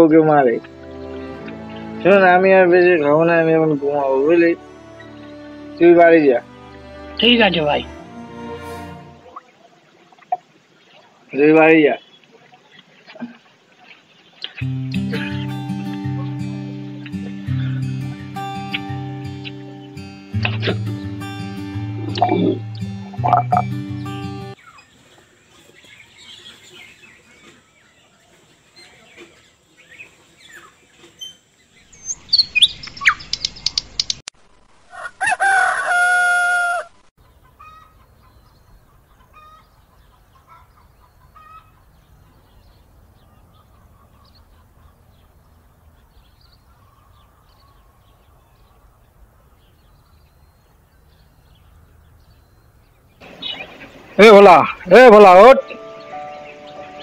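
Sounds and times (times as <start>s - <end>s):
birds chirping: 0.0s - 34.3s, 35.5s - 57.0s
rooster crowing: 34.9s - 37.0s.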